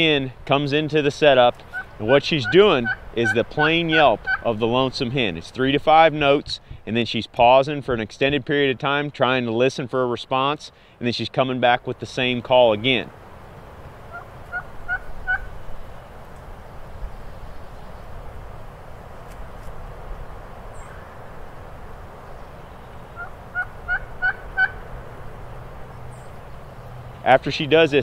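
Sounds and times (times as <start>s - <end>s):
turkey hen yelping: 1.7s - 4.5s, 14.1s - 15.5s, 23.1s - 24.9s.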